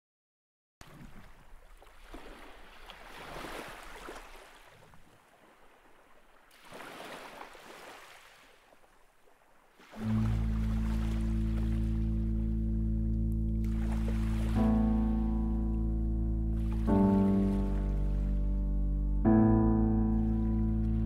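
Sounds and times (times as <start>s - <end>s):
sea waves washing in: 1.9s - 12.7s, 13.6s - 15.8s, 16.5s - 18.6s
low sustained music chord: 10.0s - 21.0s.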